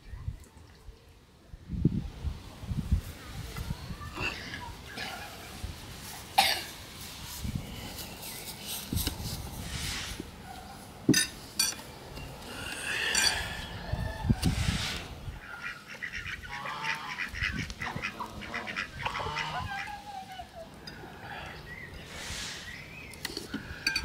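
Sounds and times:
chickens clucking: 13.0s - 24.0s
ducks quacking: 15.4s - 20.3s
geese honking: 15.4s - 20.3s.

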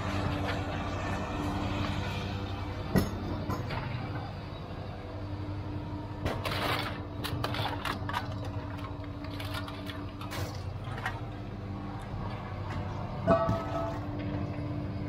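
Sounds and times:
low mechanical hum: 0.0s - 15.0s
cans and scrap metal clattering: 6.2s - 11.5s, 12.3s - 14.7s.

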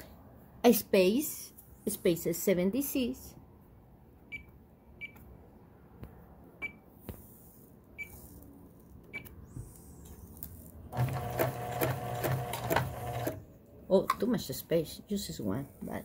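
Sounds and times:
sewing machine stitching: 10.9s - 13.4s.

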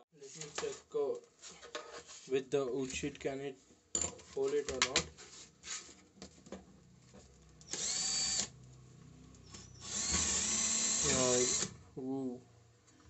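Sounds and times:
cordless drill whirring into wood: 7.6s - 8.5s, 9.5s - 11.8s.

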